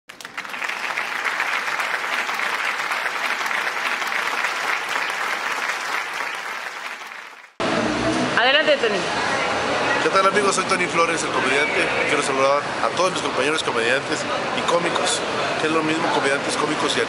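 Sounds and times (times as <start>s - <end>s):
audience applauding: 0.1s - 7.6s.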